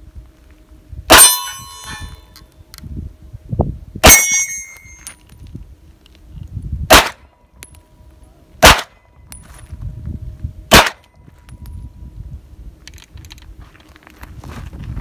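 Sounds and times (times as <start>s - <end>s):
steel target plates ringing: 1.1s - 2.4s, 4.0s - 5.3s
pistol shots: 6.9s - 7.2s, 8.6s - 9.0s, 10.7s - 11.0s.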